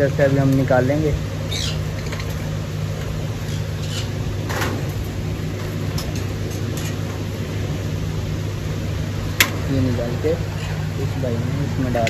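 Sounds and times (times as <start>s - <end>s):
air cooler humming: 0.0s - 12.0s
lovebirds chirping: 1.4s - 2.6s, 3.2s - 4.2s.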